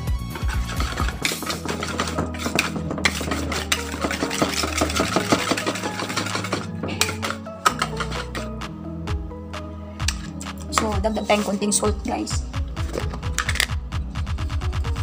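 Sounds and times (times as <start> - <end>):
whisk clicking against bowl: 0.4 - 8.4.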